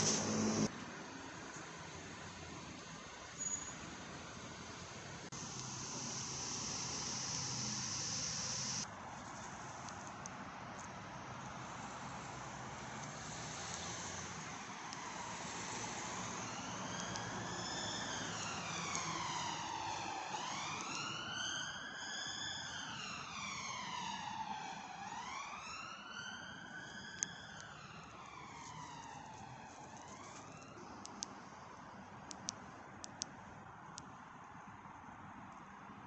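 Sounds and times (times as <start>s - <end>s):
siren wailing: 5.4s - 8.8s, 14.9s - 30.8s
sharp clicks: 32.2s - 34.1s.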